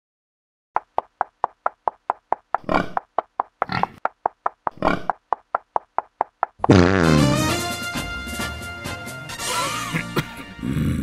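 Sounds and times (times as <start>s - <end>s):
cartoon hoof taps: 0.8s - 7.3s
pig grunts: 2.6s - 3.0s, 3.6s - 4.0s, 4.7s - 5.2s.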